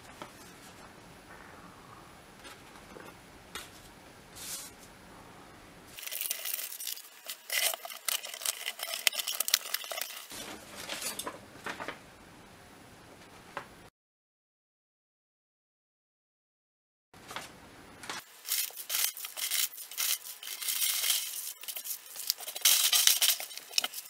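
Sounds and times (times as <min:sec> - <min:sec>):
packing tape ripping: 0:06.0 - 0:10.4, 0:18.2 - 0:24.0
packing peanuts rustling: 0:06.0 - 0:12.0, 0:18.2 - 0:24.0
paper rustling: 0:06.0 - 0:12.0, 0:17.2 - 0:24.0.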